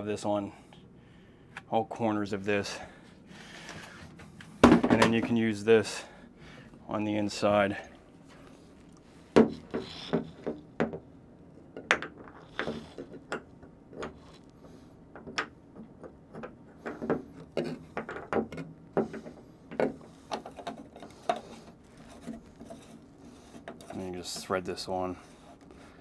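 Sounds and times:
plastic fitting clicks and knocks: 15.1s - 21.4s.

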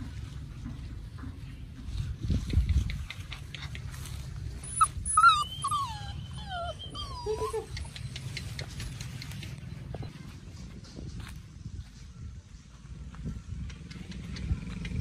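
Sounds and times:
puppies whimpering: 4.6s - 8.0s.

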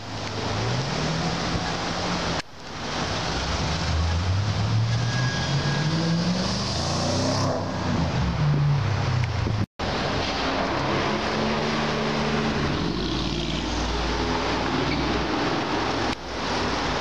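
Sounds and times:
traffic noise: 0.0s - 17.0s
car accelerating past: 3.6s - 8.2s.

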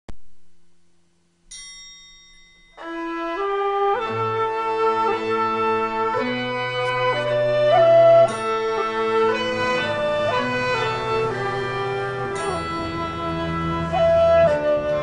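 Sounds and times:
melody of held notes: 1.5s - 15.0s.

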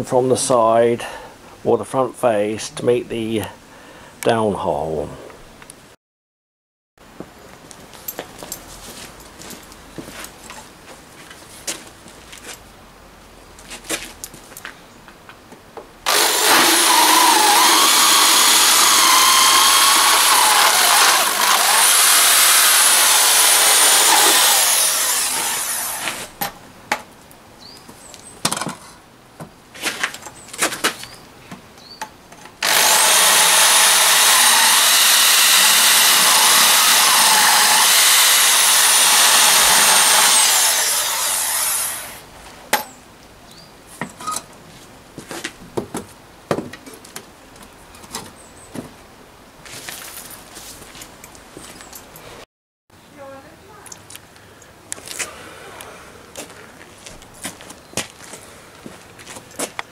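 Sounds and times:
electric drill boring into block: 16.1s - 26.1s, 32.6s - 42.2s
knocks and handling noises: 27.8s - 32.6s, 44.0s - 49.0s.

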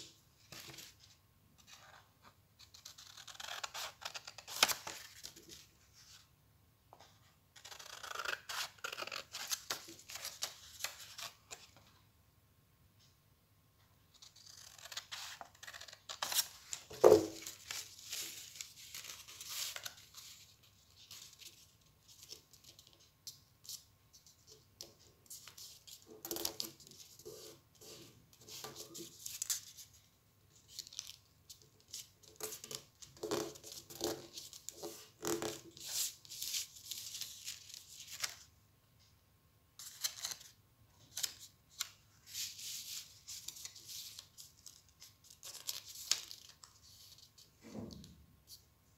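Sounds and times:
scissors cutting paper: 7.6s - 9.8s
paper rustling and crinkling: 15.1s - 23.0s.

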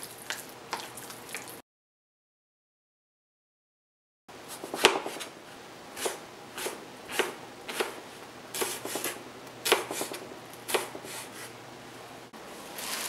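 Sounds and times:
knife slicing on cutting board: 8.6s - 11.5s.

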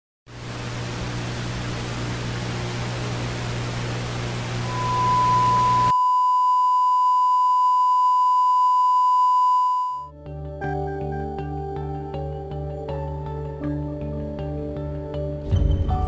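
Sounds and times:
tv static hiss: 0.3s - 5.9s
steady test tone beep: 4.6s - 10.1s
music: 10.1s - 16.0s.

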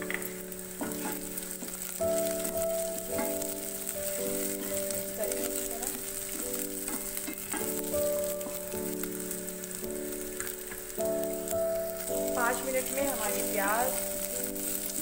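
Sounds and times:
wooden spoon scraping a pan: 0.0s - 9.5s
food sizzling in hot oil: 0.0s - 15.0s
soft background music: 0.0s - 15.0s.

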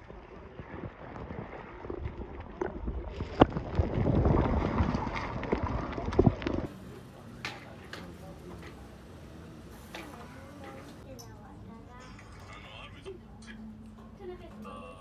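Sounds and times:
underwater sloshing rumble: 0.0s - 6.7s
underwater knocks and clicks: 1.9s - 6.7s.

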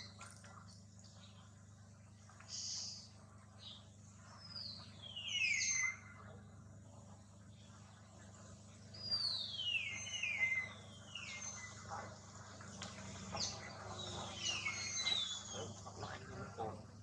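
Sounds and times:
bird whistling descending notes: 9.2s - 11.6s.

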